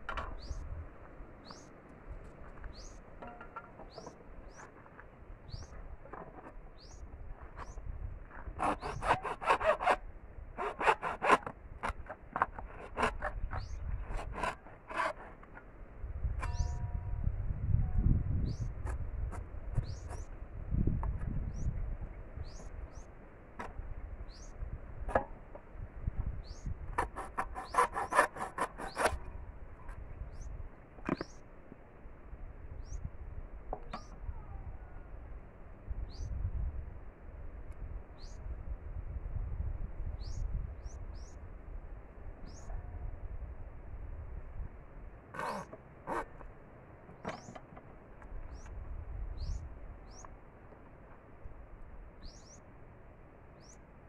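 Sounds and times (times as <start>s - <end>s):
small birds chirping: 1.4s - 1.8s, 2.7s - 3.0s, 6.8s - 7.8s, 13.4s - 13.9s, 19.7s - 20.4s, 21.5s - 23.1s, 24.3s - 24.6s, 26.4s - 26.7s, 30.3s - 31.5s, 42.4s - 42.7s, 49.4s - 50.4s, 52.2s - 52.7s
hacksaw cutting bamboo: 8.6s - 10.0s, 10.6s - 15.4s, 27.0s - 29.2s.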